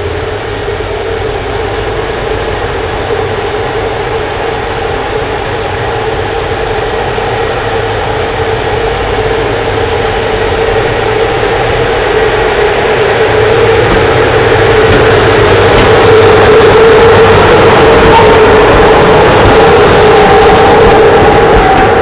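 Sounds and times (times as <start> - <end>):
electric locomotive passing: 0.0 - 22.0.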